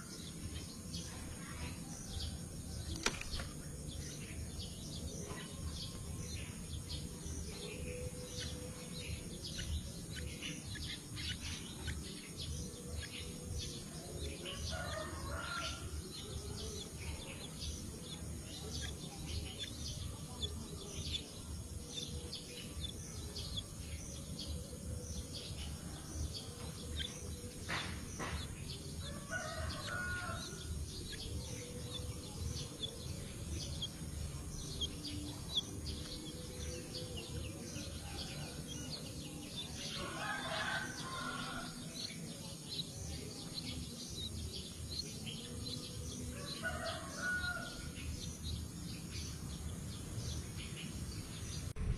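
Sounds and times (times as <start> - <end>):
faint rooster crowing: 14.5 - 16.0, 29.0 - 30.7, 46.4 - 47.9.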